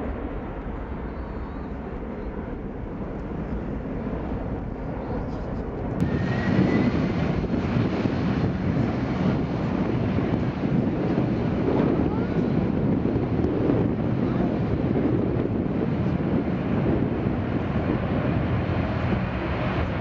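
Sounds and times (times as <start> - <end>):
close jet noise with rising whine: 0.0 - 20.0
jet engines rumbling: 0.0 - 20.0.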